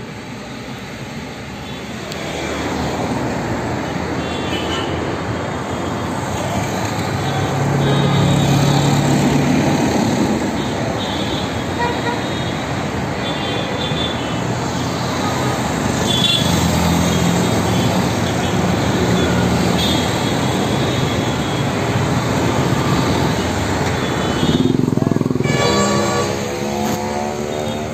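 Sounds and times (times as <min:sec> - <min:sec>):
road traffic rushing: 0:00.0 - 0:27.9
auto-rickshaw engine passing: 0:21.8 - 0:27.9
short horn toot: 0:25.4 - 0:27.0.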